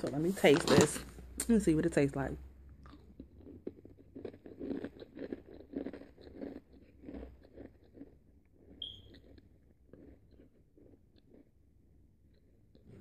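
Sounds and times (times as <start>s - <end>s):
person crunching waffle snack: 2.8s - 12.9s.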